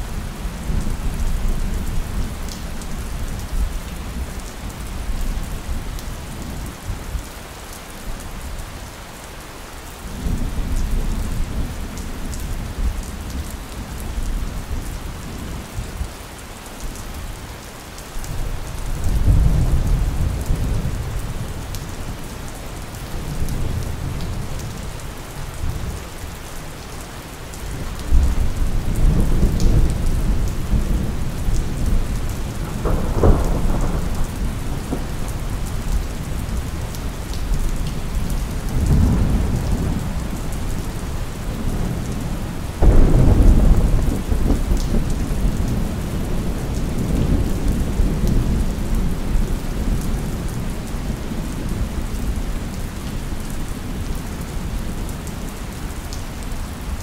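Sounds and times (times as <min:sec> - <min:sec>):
steady rain: 0:00.0 - 0:57.0
thunder rumbling: 0:28.1 - 0:37.4, 0:42.8 - 0:49.2.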